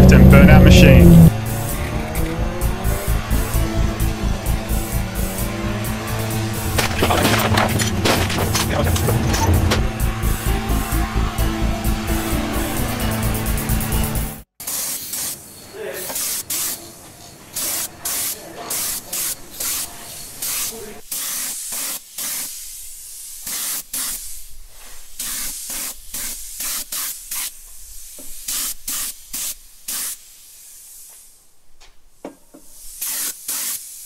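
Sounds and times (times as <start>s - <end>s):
short hissing bursts: 14.6s - 31.5s, 32.6s - 34.0s.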